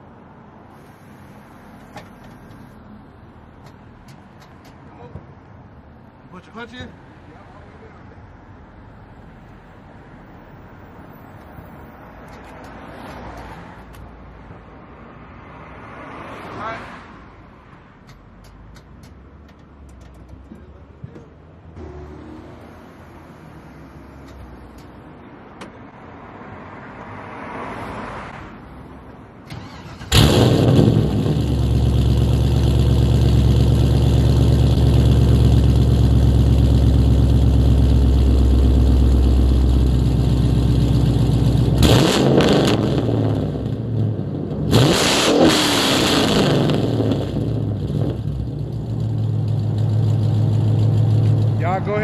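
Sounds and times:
car engine starting and running: 29.3 - 52.0.

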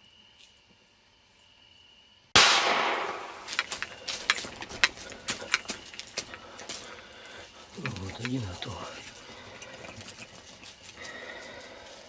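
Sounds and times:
gunshot: 2.4 - 3.5
sharp clicks and crackles: 2.8 - 11.4.

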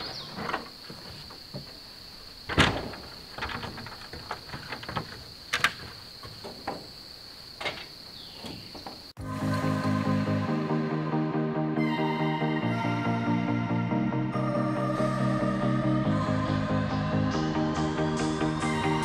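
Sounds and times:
knocks and scrapes of parts: 0.0 - 1.9, 2.5 - 9.1
high insect drone: 0.0 - 17.5.

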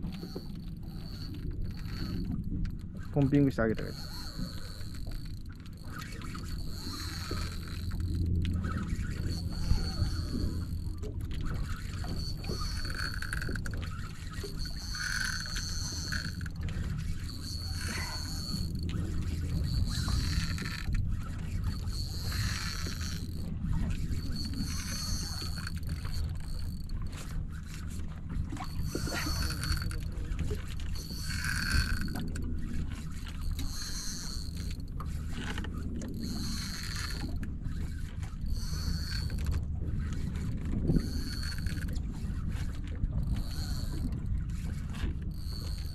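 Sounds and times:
boat engine humming: 0.0 - 45.9
faint clicks: 0.0 - 45.9
fishing reel drag singing: 0.0 - 45.9
high-pitched whine: 3.1 - 27.0.

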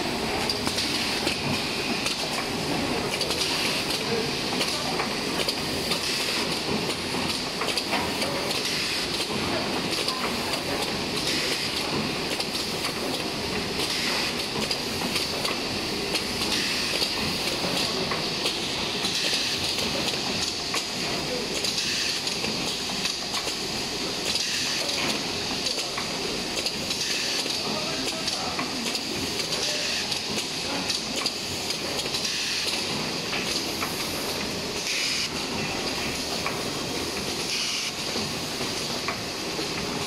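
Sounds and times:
pneumatic hiss: 34.8 - 35.4.

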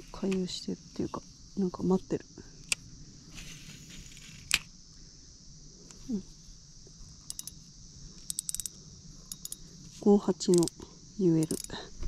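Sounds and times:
insects chirping: 0.0 - 12.0
fishing reel clicking: 7.3 - 7.6, 8.3 - 9.6, 10.5 - 10.7, 11.4 - 11.8.

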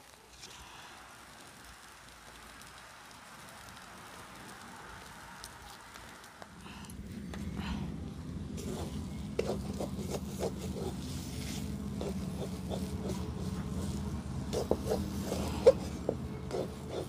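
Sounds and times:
low rumble: 6.5 - 16.5.

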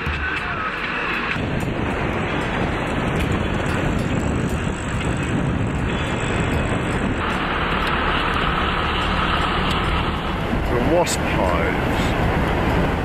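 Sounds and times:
vehicle road rumble: 0.0 - 13.0
wind noise: 0.0 - 13.0.

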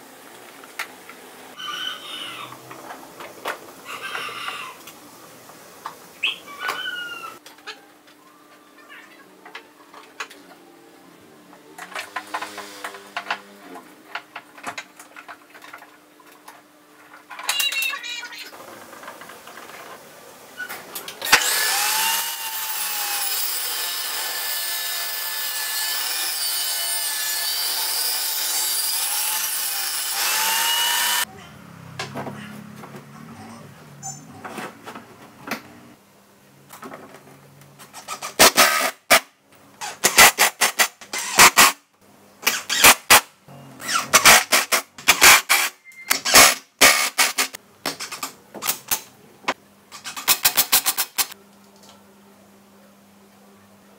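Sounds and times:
table saw cutting wood: 21.2 - 31.3.

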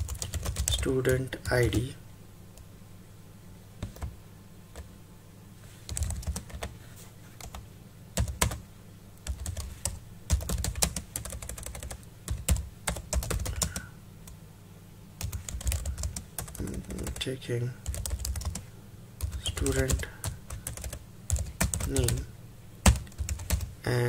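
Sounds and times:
keyboard typing: 0.0 - 1.7, 3.8 - 4.1, 5.9 - 6.8, 7.4 - 7.6, 8.2 - 8.6, 9.2 - 14.4, 15.2 - 18.6, 19.2 - 23.7.

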